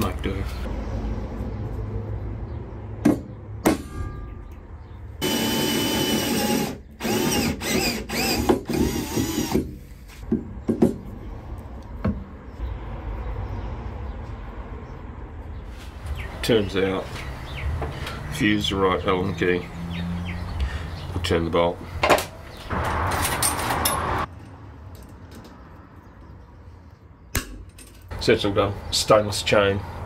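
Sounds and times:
sharp metal knocks: 3.0 - 5.0, 10.3 - 11.1, 27.3 - 28.1
cordless drill driving a bolt: 5.2 - 9.7.

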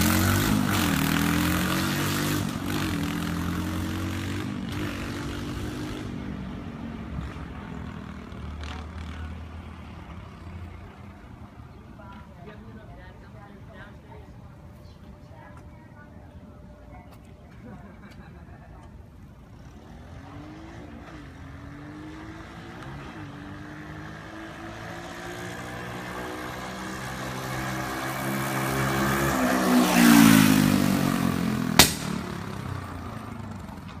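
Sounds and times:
small motorbike engine passing: 0.0 - 11.6, 19.3 - 34.0.

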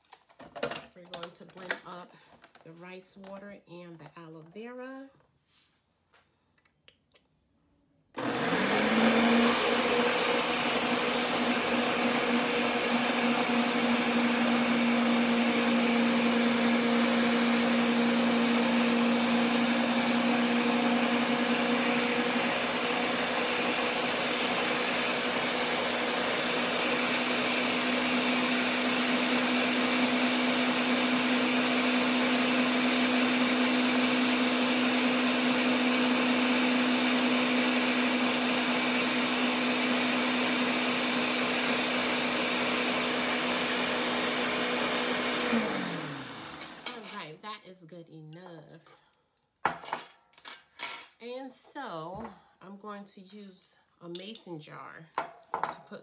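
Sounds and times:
electric blender running: 8.2 - 47.2.

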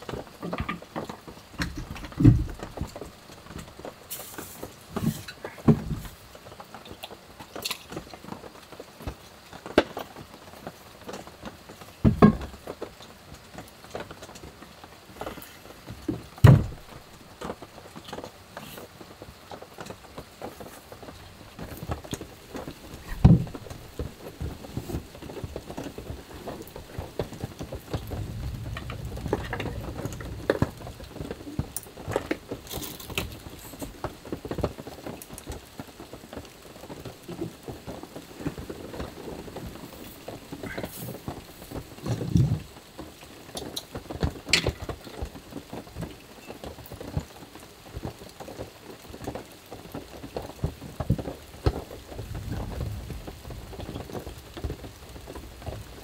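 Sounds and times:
rain pattering on a roof: 0.0 - 56.0
low rumbling: 26.2 - 31.4, 52.0 - 54.1.

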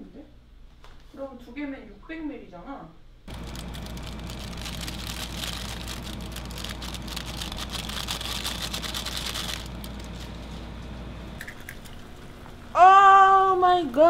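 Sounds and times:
water boiling and bubbling: 3.3 - 10.2, 11.4 - 12.8.

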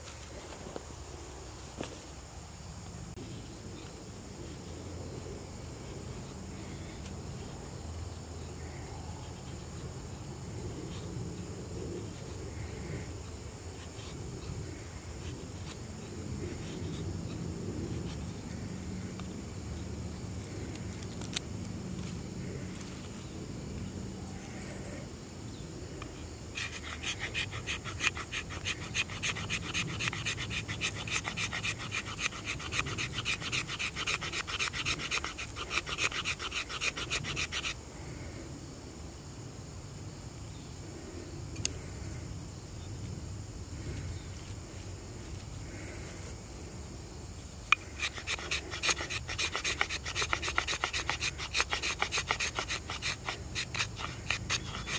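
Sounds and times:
knife blade scraping: 26.6 - 37.8, 47.6 - 54.9.

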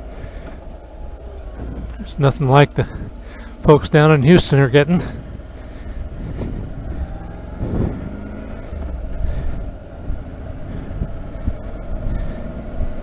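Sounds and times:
motorcycle engine running: 0.0 - 13.0
wind noise: 4.3 - 13.0.

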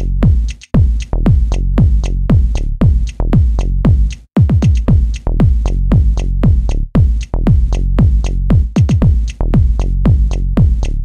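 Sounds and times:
electronic dance music: 4.4 - 5.2, 8.1 - 9.4.

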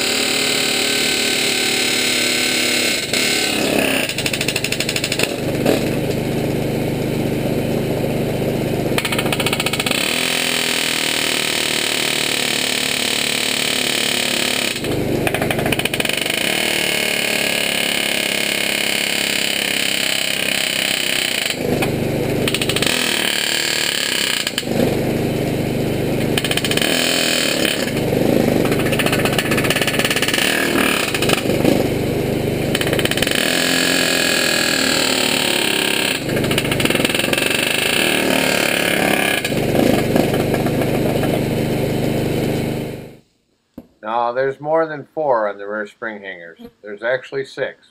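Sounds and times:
air hammer rattling on steel: 26.2 - 31.8.

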